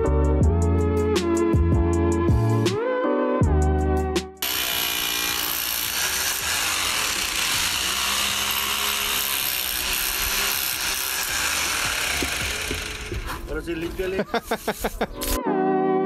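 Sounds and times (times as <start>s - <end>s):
power tool grinding stone: 4.4s - 13.9s.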